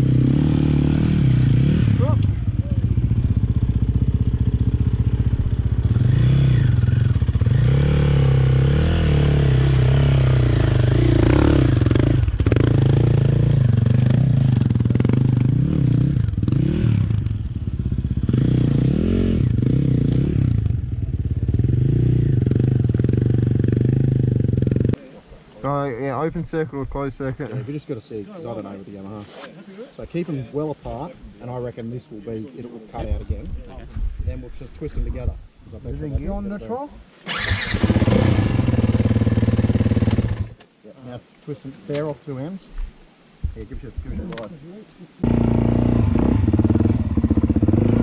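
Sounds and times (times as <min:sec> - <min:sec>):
dirt bike engine revving: 0:00.0 - 0:25.0, 0:37.2 - 0:40.6, 0:45.2 - 0:48.0.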